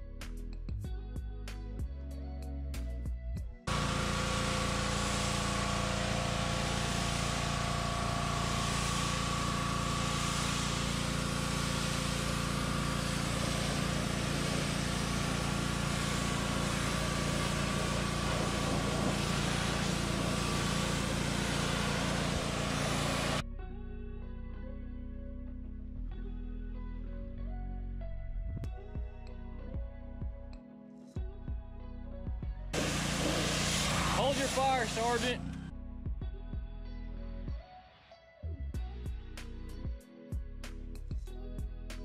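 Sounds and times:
pressure washer jet hissing: 0:03.7 - 0:23.4, 0:32.8 - 0:35.5.

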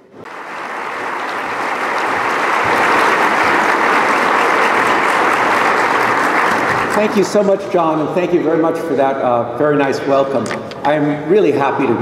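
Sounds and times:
large audience applauding: 0:00.2 - 0:07.6.

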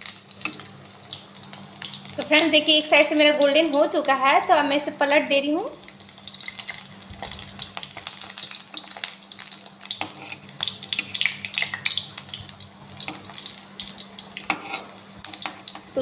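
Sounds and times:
rolls sizzling in hot oil: 0:00.0 - 0:16.0
metal spatula scraping pan: 0:10.0 - 0:11.2, 0:14.5 - 0:15.8.

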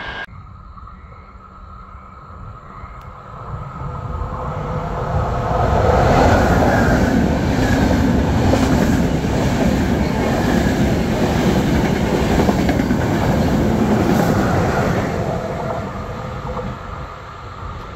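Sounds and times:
train wheels rushing on rails: 0:03.3 - 0:17.9.

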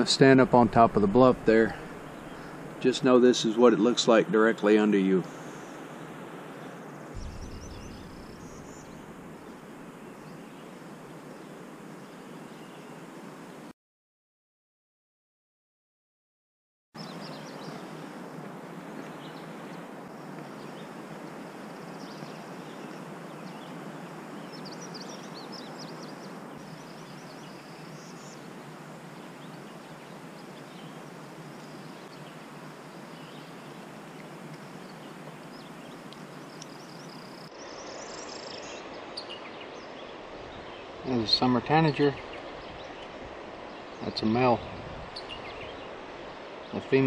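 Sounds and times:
birds chirping: 0:00.0 - 0:13.0, 0:17.0 - 0:18.4, 0:21.8 - 0:47.0
steady rushing background: 0:07.2 - 0:10.3.

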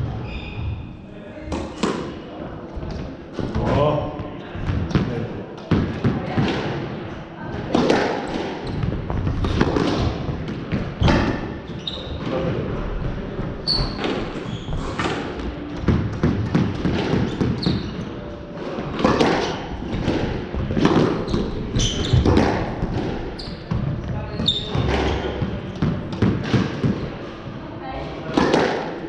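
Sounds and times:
shoes squeaking: 0:00.0 - 0:01.0, 0:08.4 - 0:10.2, 0:11.0 - 0:12.5, 0:13.5 - 0:15.7, 0:16.8 - 0:18.4, 0:21.1 - 0:26.1
squash ball hit by rackets: 0:05.7 - 0:06.8, 0:07.6 - 0:11.6, 0:13.8 - 0:18.0, 0:18.6 - 0:27.1, 0:28.3 - 0:29.0.

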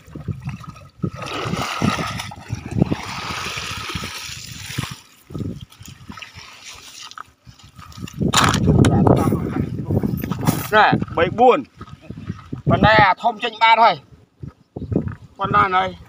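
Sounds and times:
water splashing off a net: 0:00.5 - 0:07.3.

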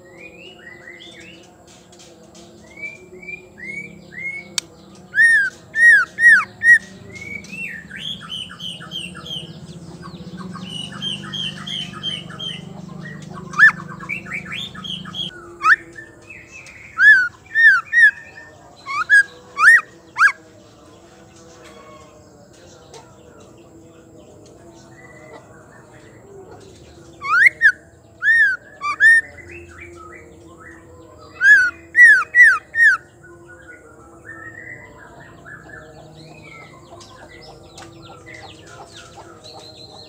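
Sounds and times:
bird twittering and chattering: 0:00.0 - 0:40.0
bird whistling song: 0:02.6 - 0:09.5, 0:10.1 - 0:20.4, 0:27.2 - 0:30.7, 0:31.3 - 0:35.7.

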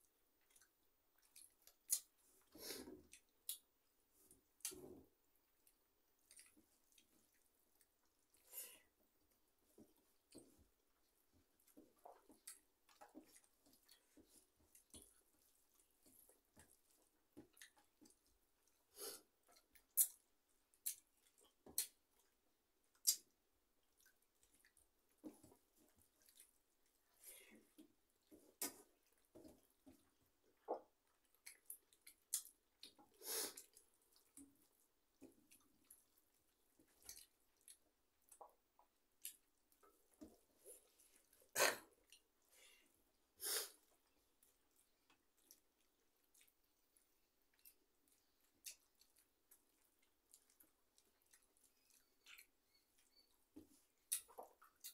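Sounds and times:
people eating with hands: 0:00.0 - 0:54.9
chewing smacks and clicks: 0:00.4 - 0:02.2, 0:05.6 - 0:08.4, 0:19.4 - 0:24.9, 0:29.9 - 0:34.6, 0:36.8 - 0:38.6, 0:44.0 - 0:54.9.

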